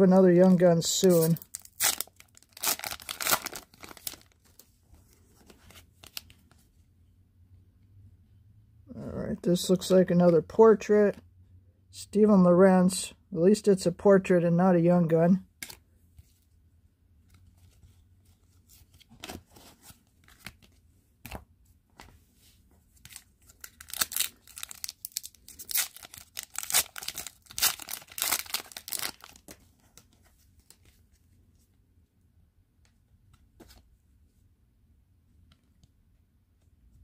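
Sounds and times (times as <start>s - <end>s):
foil wrapper tearing and crinkling: 1.0s - 4.4s, 23.1s - 29.4s.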